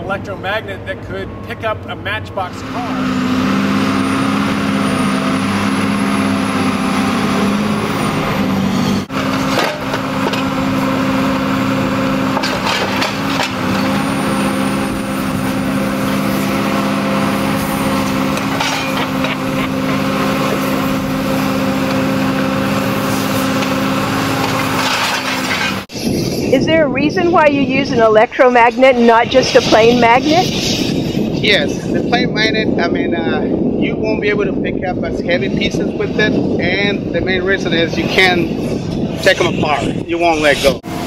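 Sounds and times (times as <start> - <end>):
machine engine and hydraulics drone: 0.0 - 32.8, 34.5 - 41.0
scrap metal clanking: 9.2 - 11.0, 12.3 - 16.8, 17.4 - 26.0.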